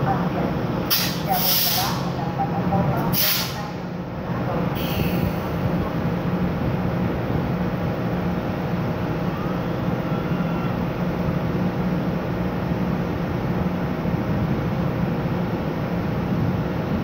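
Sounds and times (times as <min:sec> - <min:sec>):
diesel locomotive idling: 0:00.0 - 0:16.8.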